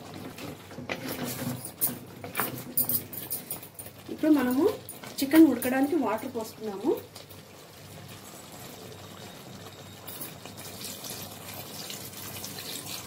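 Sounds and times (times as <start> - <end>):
water pouring into gravy: 7.3 - 13.0.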